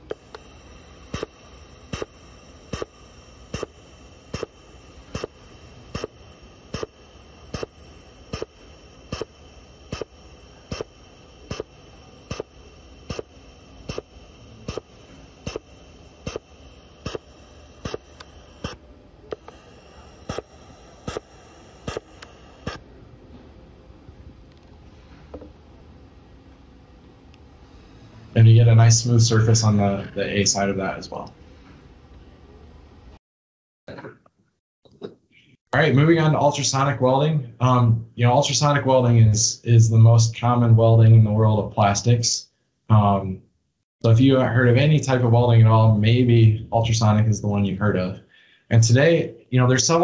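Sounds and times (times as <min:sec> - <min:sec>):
plastic welder hissing: 0:00.0 - 0:22.8.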